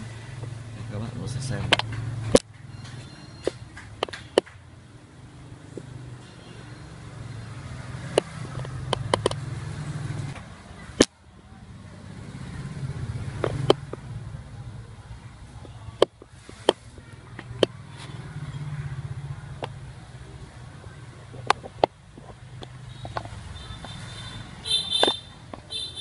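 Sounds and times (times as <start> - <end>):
road traffic rumble: 0.0 - 26.0
sharp clicks and knocks: 1.6 - 4.7, 8.0 - 9.5, 13.3 - 14.1, 21.3 - 24.0.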